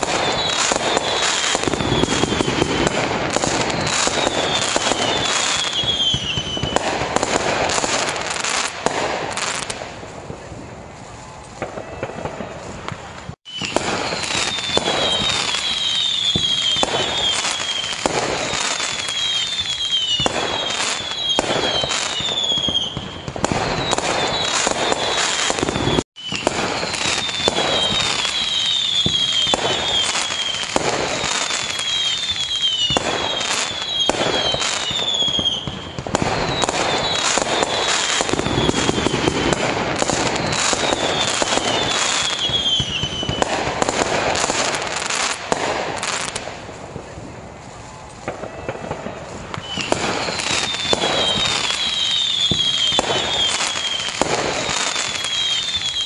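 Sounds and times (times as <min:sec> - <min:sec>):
falling whistles: 0:00.0 - 0:06.9, 0:13.5 - 0:43.5, 0:48.4 - 0:56.0
fireworks bangs and crackling: 0:00.0 - 0:56.0.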